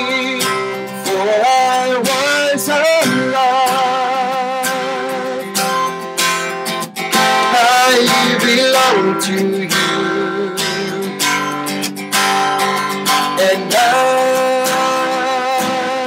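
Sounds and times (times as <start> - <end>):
man singing: 0.0 - 5.9, 7.1 - 11.7, 13.0 - 16.0
acoustic guitar strumming: 0.0 - 16.0.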